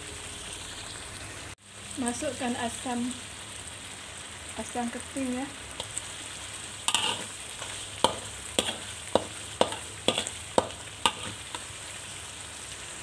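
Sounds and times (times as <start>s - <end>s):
chili paste sizzling: 0.0s - 13.0s
metal spatula scraping a wok: 6.8s - 11.8s.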